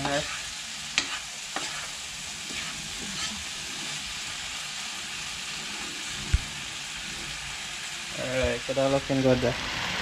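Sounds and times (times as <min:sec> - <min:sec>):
spoon scraping: 0:00.0 - 0:04.2
food sizzling in a frying pan: 0:00.0 - 0:10.0.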